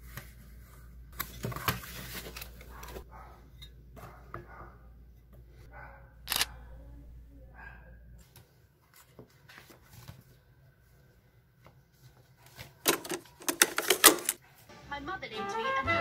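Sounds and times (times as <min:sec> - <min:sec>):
background hum: 0:00.0 - 0:09.0
notebook pages turning: 0:12.1 - 0:14.4.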